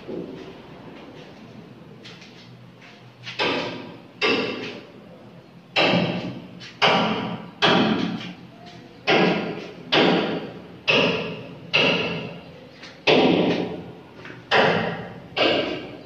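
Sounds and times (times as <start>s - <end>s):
heavy knocks ringing off walls: 3.4s - 4.8s, 5.7s - 8.2s, 9.0s - 12.4s, 13.0s - 16.0s.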